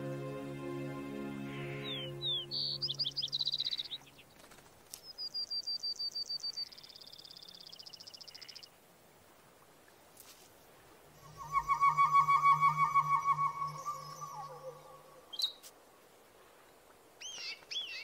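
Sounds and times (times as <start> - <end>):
birds chirping and trilling: 1.5 - 8.7, 11.2 - 15.6
low warbling bird trill: 1.6 - 4.1, 11.2 - 15.6
low hum: 11.2 - 15.3.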